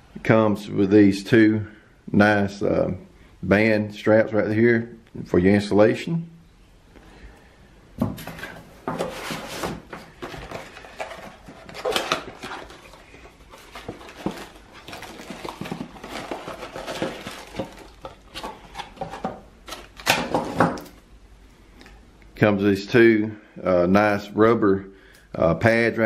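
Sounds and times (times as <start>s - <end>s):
packaging rustling: 8.2s - 21.0s.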